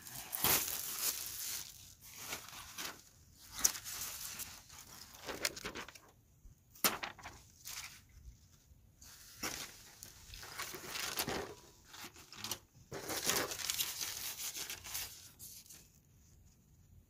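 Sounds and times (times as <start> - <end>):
plastic wrapping crinkling: 0.0 - 6.1, 9.2 - 15.9.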